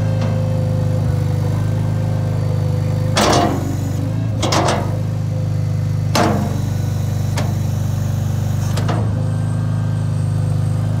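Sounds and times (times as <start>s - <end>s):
loader engine running: 0.0s - 11.0s
sharp metal clanks: 3.2s - 5.0s.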